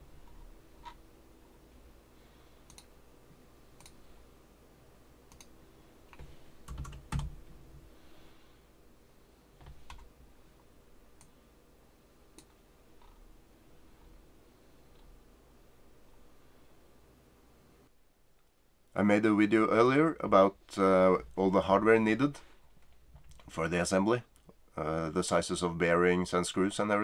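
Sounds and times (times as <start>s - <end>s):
computer mouse clicks: 2.6s - 2.9s, 3.8s - 4.0s, 5.3s - 5.5s.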